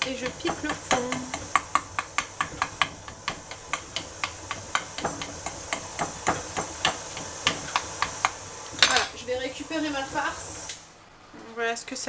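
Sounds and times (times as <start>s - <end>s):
fork tapping pastry: 0.0s - 8.4s.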